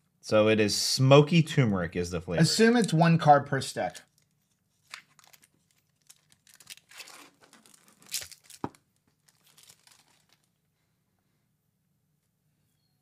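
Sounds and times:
wrapper crinkling: 4.0s - 10.6s.

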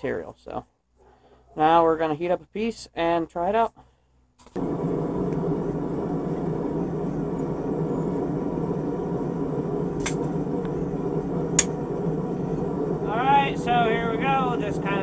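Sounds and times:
steady low rushing noise: 4.6s - 15.0s.

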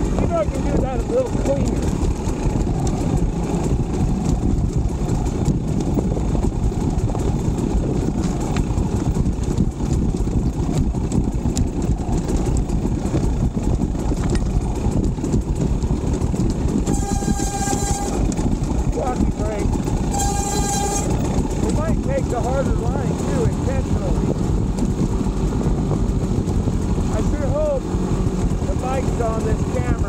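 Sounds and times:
dense low rumble: 0.0s - 30.0s
dirt bike engine running: 0.0s - 30.0s
higher engine note: 14.2s - 30.0s.

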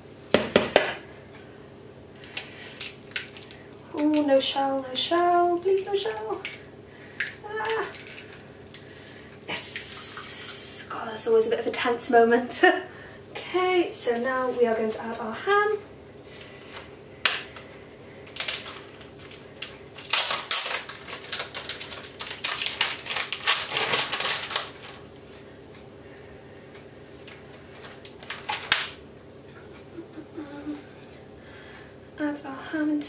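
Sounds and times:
plastic packet crinkling: 7.5s - 8.8s, 18.3s - 25.0s, 27.9s - 28.9s.

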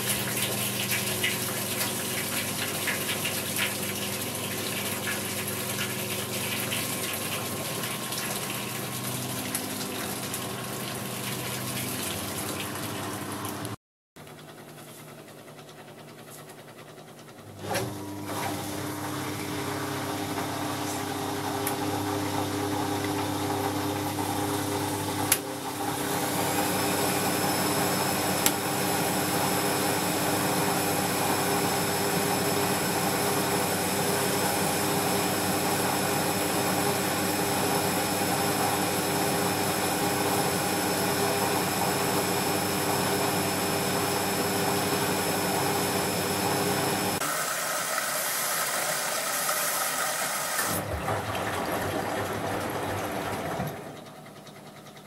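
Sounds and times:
washing machine drum motor: 0.0s - 55.0s
washing machine click: 25.3s - 25.5s.

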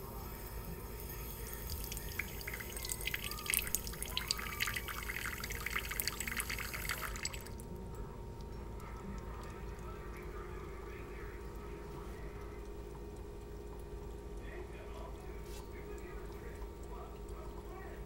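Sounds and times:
tap water trickling into a cup: 1.1s - 7.7s
cat lapping water: 1.2s - 7.7s.

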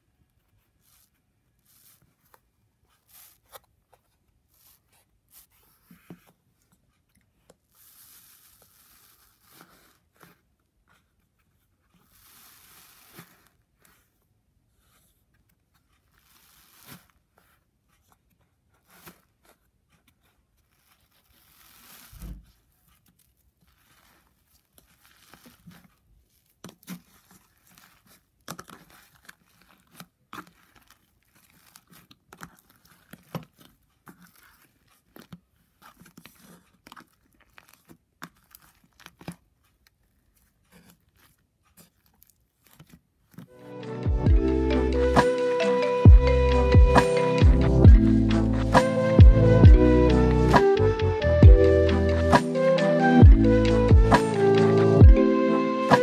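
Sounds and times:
fingers squishing slime: 15.0s - 43.5s.

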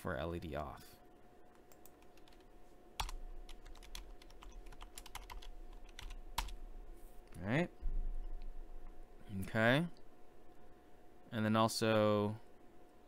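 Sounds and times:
typing on computer keyboard: 1.7s - 6.6s.

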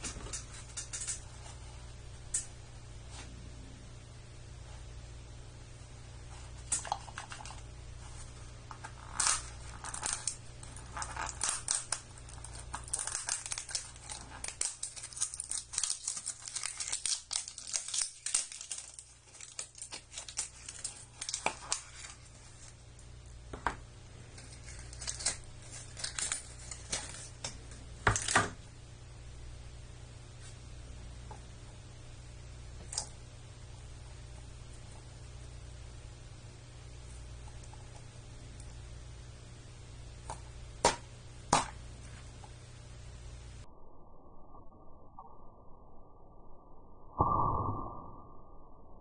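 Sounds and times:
plastic wrap crinkling: 8.2s - 22.9s, 24.3s - 28.4s.

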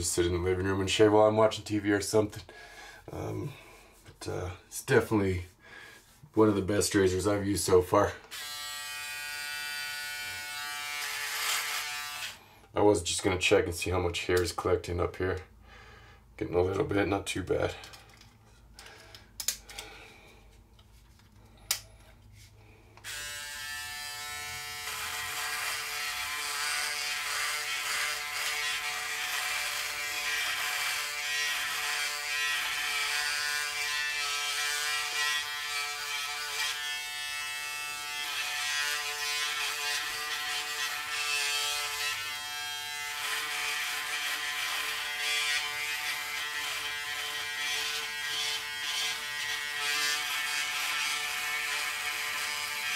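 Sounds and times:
electric shaver buzzing: 8.3s - 12.4s, 23.0s - 52.9s.

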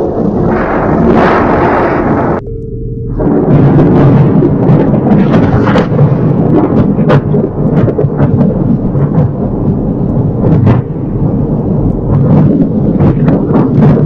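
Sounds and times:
thunder rolling rumble: 0.0s - 2.4s, 3.1s - 14.0s
sharp cracks and crackles: 3.8s - 14.0s.

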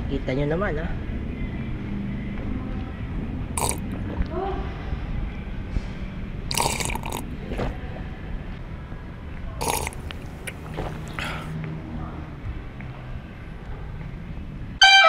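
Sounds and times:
slurping a drink: 3.6s - 4.0s, 6.5s - 7.8s, 9.6s - 11.5s.

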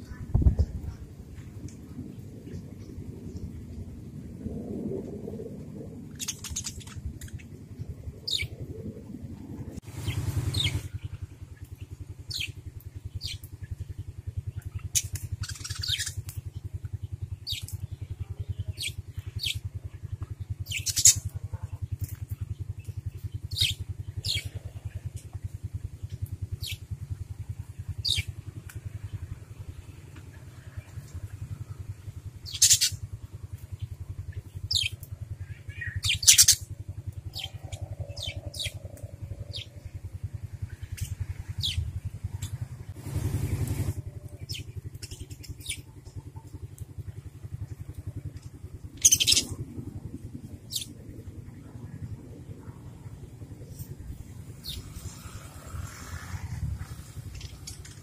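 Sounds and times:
low mechanical drone: 0.0s - 58.0s
budgerigars chirping: 15.0s - 16.2s, 32.5s - 33.0s, 35.7s - 36.6s, 49.0s - 49.5s.

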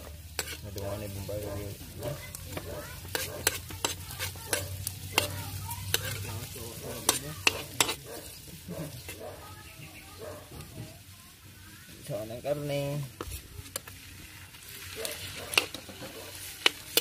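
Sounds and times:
metal spoon scraping a wok: 0.0s - 9.2s, 13.0s - 14.0s, 14.7s - 17.0s
food sizzling in a wok: 0.0s - 17.0s.

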